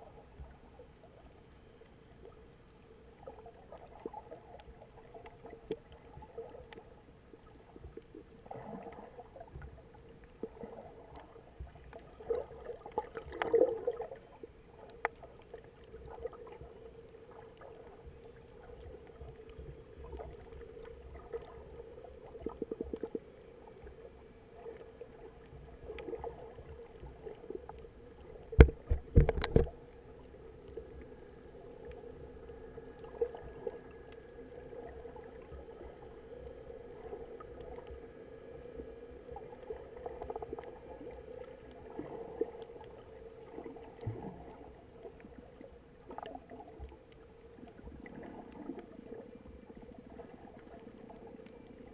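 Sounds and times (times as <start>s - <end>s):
steady hum: 0.0s - 51.9s
small clicks: 28.5s - 29.8s.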